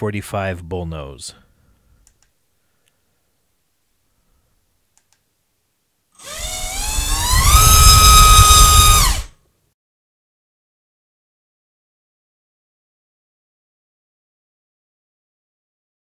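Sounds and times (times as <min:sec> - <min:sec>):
brushless motor whine: 0:06.2 - 0:09.3.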